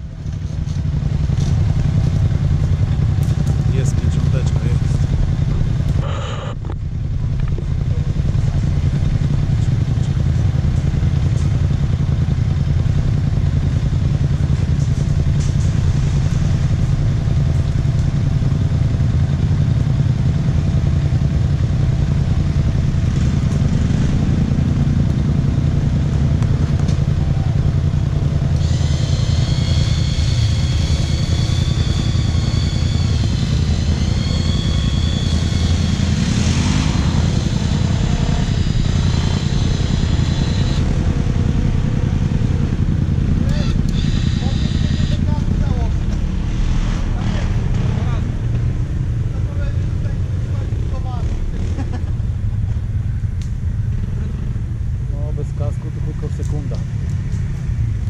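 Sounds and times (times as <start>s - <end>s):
quad bike engines running: 0.0s - 58.0s
high wavering whine: 3.8s - 8.8s, 28.4s - 47.8s.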